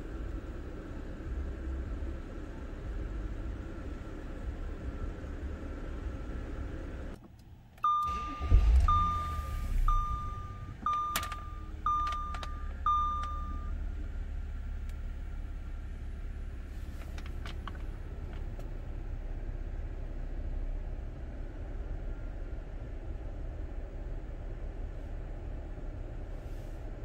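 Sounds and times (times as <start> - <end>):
car engine idling: 0.0 - 27.0
car warning chime beeps: 7.8 - 13.8.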